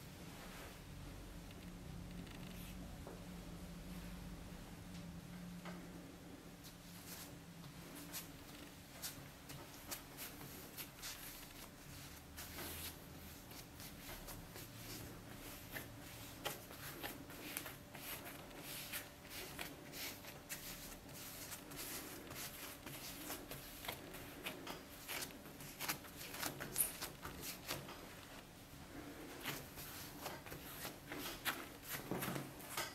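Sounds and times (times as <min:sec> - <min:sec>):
hands patting dough: 0:09.0 - 0:28.5.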